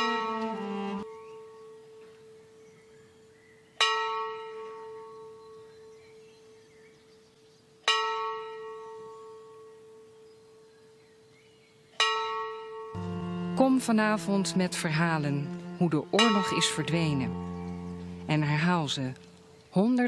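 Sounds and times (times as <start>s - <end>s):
bell tolling: 0.0s - 0.8s, 13.0s - 19.4s.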